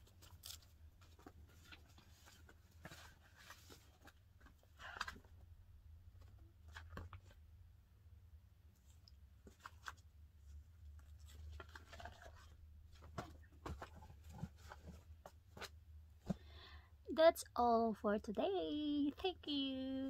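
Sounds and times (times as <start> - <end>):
low steady hum: 0.0 - 20.0
paper sheets rustling: 11.0 - 15.7.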